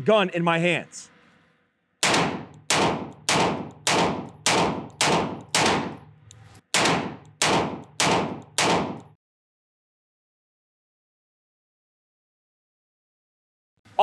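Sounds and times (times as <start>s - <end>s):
handgun shots: 2.0s - 6.1s, 6.7s - 9.2s.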